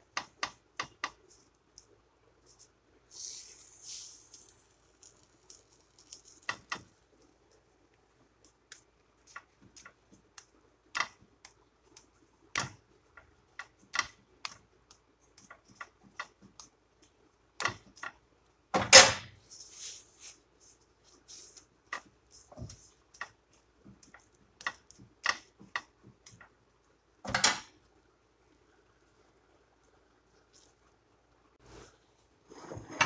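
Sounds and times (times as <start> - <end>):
spatula clicking on flat pan: 8.7 - 12.8.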